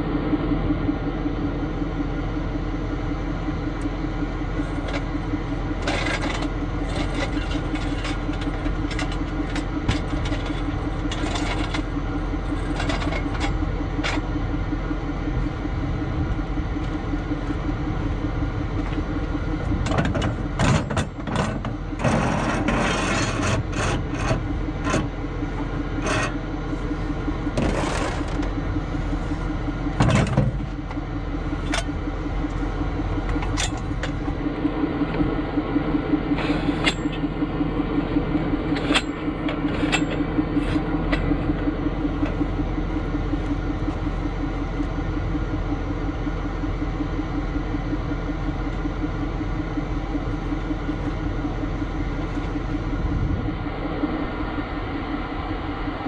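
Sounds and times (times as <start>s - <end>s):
truck engine idling: 0.0s - 56.0s
clicks and scrapes: 20.0s - 25.1s, 27.6s - 28.5s.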